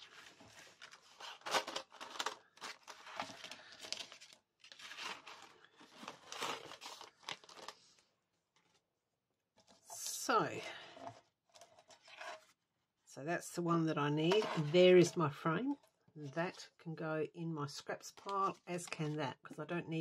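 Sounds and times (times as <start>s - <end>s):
card and plastic rustling: 0.0s - 8.8s.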